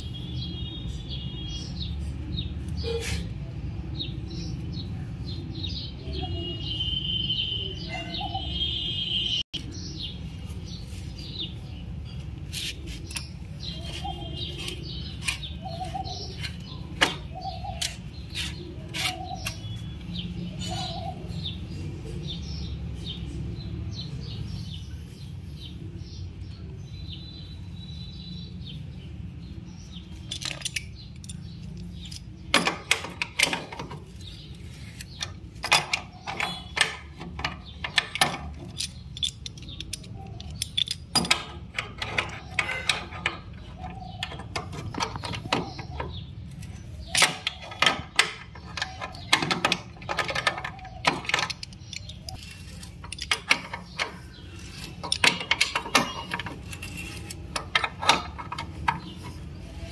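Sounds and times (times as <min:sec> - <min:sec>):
wrench clinking on metal: 0:30.1 - 0:59.4.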